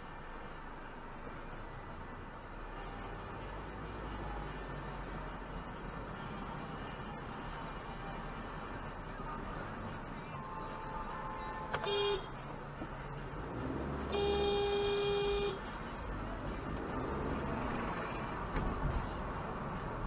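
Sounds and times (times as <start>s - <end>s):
low road noise inside car: 0.0s - 20.0s
car horn honking: 10.2s - 12.4s, 14.0s - 15.7s.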